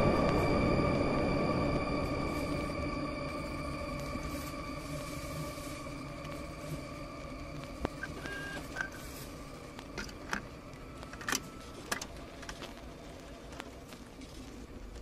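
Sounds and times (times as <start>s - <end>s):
held synth tones: 0.0s - 12.4s
sharp glitchy clicks: 7.7s - 9.0s
short electronic beeps: 8.0s - 9.0s.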